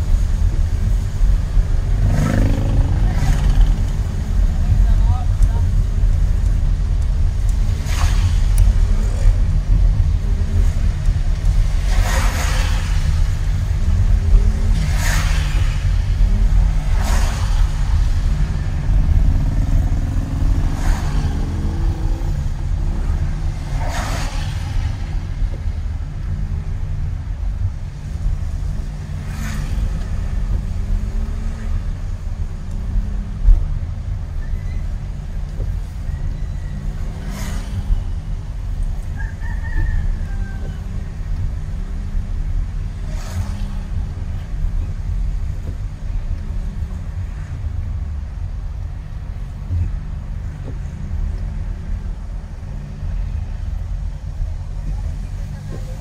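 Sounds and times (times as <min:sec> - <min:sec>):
car driving on road: 0:00.0 - 0:56.0
vehicle passing by: 0:01.8 - 0:05.0.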